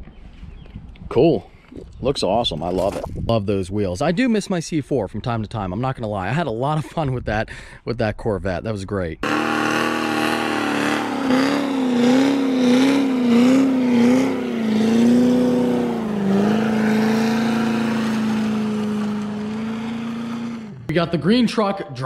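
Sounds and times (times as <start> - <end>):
car engine at high revs: 9.2 - 20.9
spinning tyres hissing: 9.2 - 20.9.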